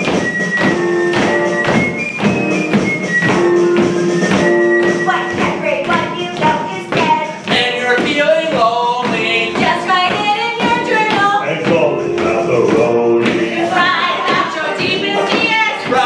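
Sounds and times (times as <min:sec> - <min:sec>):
voices singing with accompaniment: 0:06.6 - 0:16.0.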